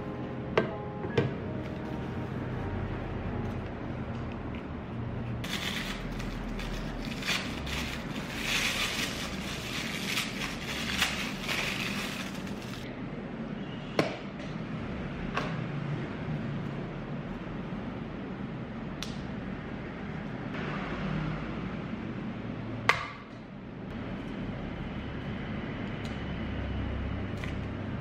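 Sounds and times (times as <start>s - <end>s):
plastic wrapping crinkling: 5.4s - 12.9s.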